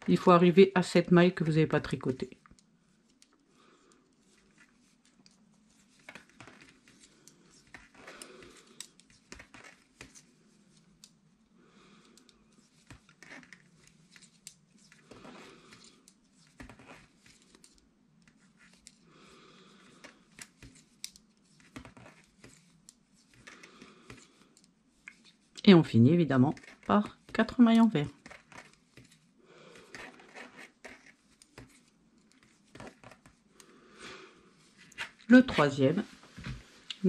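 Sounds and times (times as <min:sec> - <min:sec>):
knitting needles clicking: 0:06.1 - 0:10.2, 0:12.0 - 0:15.0, 0:20.0 - 0:25.7.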